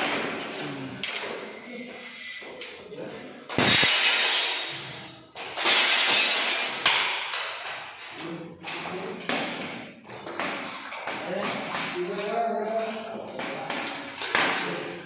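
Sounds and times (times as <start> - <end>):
glass pane crashing knocks: 3.5 - 4.7, 5.6 - 7.1.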